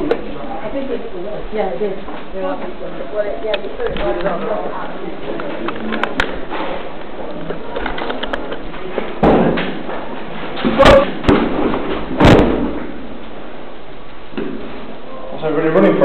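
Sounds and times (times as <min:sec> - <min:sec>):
loud bangs and thuds: 0:09.2 - 0:09.9, 0:10.6 - 0:13.0.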